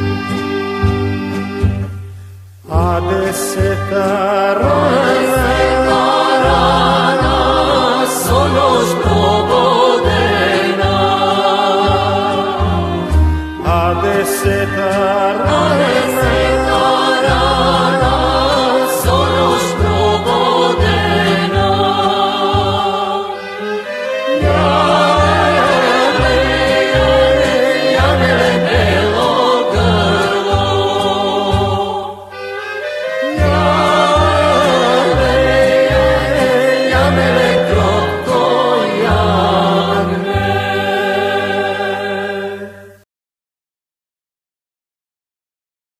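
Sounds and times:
instrumental accompaniment: 0:00.0 - 0:43.0
man singing folk song: 0:02.6 - 0:12.7, 0:13.6 - 0:22.6, 0:33.4 - 0:40.3
backing voices: 0:02.7 - 0:32.3, 0:33.2 - 0:42.6.

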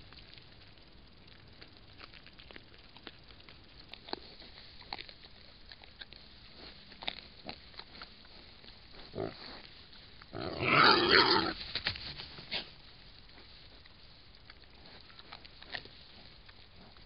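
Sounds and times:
crunching chewing clicks: 0:00.0 - 0:17.0
rustling in dry straw: 0:06.1 - 0:17.0.

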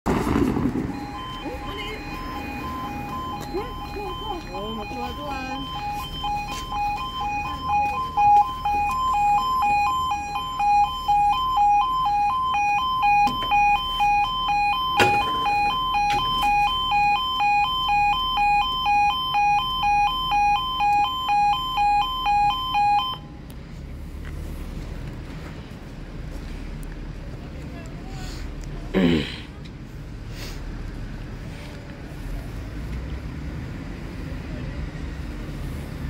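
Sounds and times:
two-tone electronic alarm: 0:00.9 - 0:23.3.

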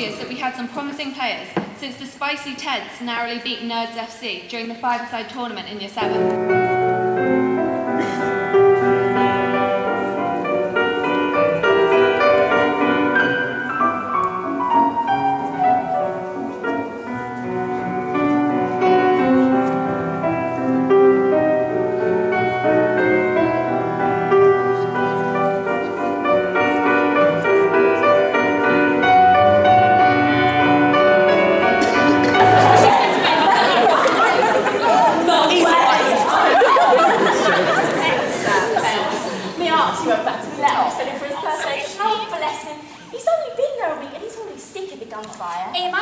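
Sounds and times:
slow classical piano music: 0:06.0 - 0:41.8.

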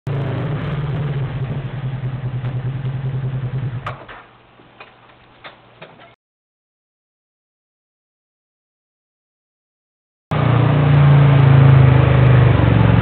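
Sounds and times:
vehicle engine idling: 0:00.1 - 0:04.4.

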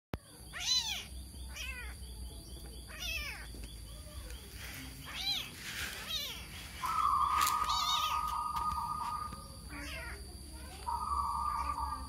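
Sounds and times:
kitten mewing: 0:02.9 - 0:03.5, 0:07.7 - 0:08.3.

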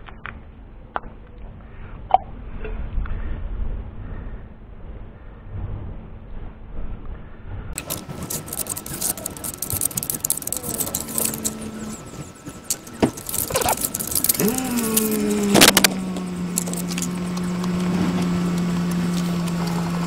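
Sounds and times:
steady hum: 0:00.4 - 0:20.0
plastic spreader scraping board: 0:07.8 - 0:12.1.

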